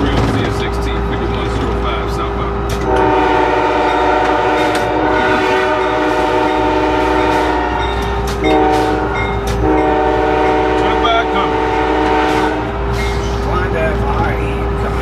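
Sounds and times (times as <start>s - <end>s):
moving locomotive rumble: 0.0s - 15.0s
locomotive air horn chord: 2.8s - 12.9s.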